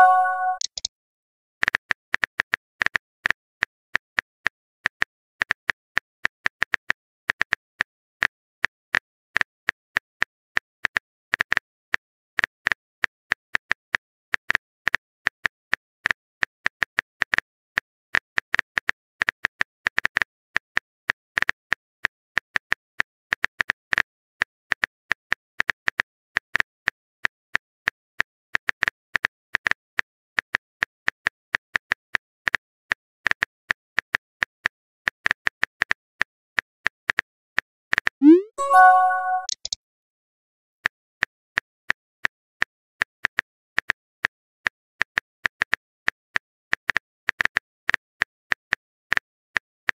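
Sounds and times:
keyboard tap clicks: 38.2 - 39.8.

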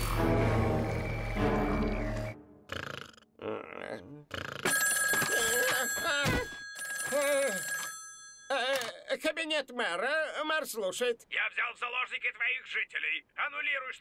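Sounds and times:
telephone bell ringing: 4.6 - 8.9.

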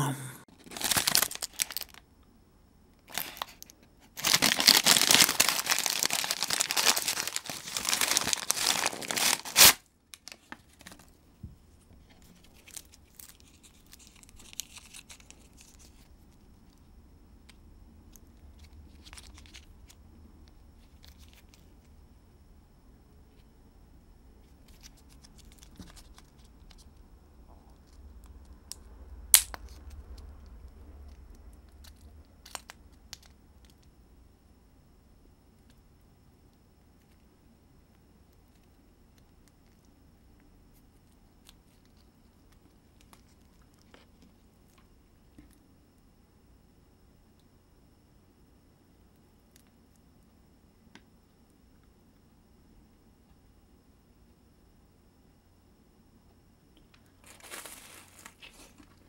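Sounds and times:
packaging crinkling: 0.5 - 2.0, 3.1 - 11.1, 12.2 - 16.0, 57.2 - 59.0
paper bag tearing and rustling: 0.6 - 1.9, 4.2 - 9.8, 57.2 - 58.8.

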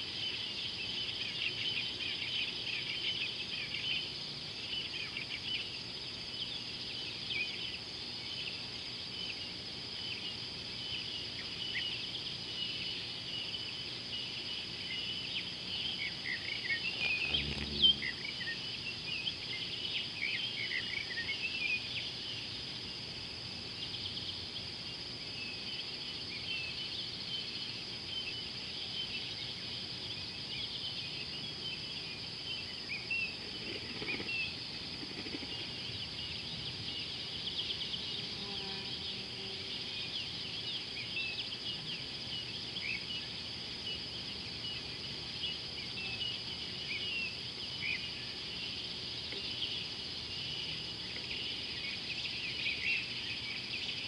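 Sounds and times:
high-pitched insect drone: 11.1 - 22.7.

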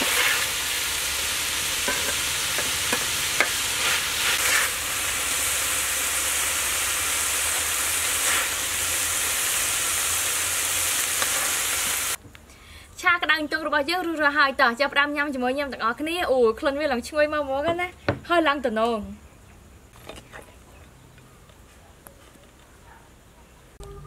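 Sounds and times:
metal spatula scraping a pan: 0.0 - 0.6, 1.8 - 4.8
food sizzling in a wok: 0.0 - 12.2.

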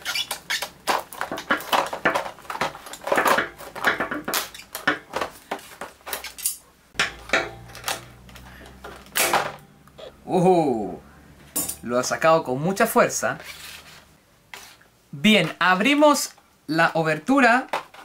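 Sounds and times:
plastic crackling: 0.0 - 6.4.

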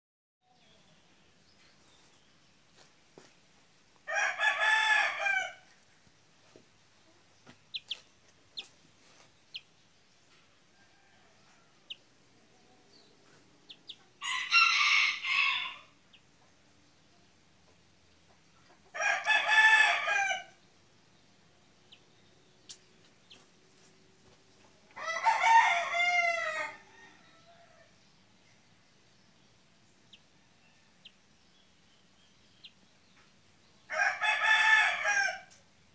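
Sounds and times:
young chicken crowing: 4.0 - 5.8, 10.7 - 12.1, 13.7 - 16.1, 18.8 - 20.6, 24.8 - 28.0, 33.8 - 35.6.

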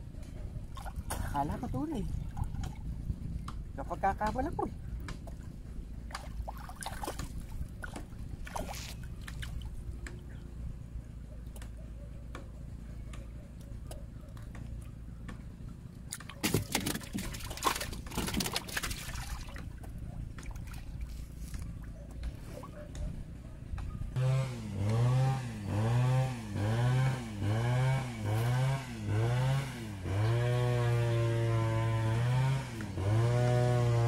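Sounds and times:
river water sloshing and trickling: 0.0 - 10.6, 14.3 - 22.8
water splashing: 0.7 - 4.2, 5.2 - 10.2, 16.0 - 21.9.

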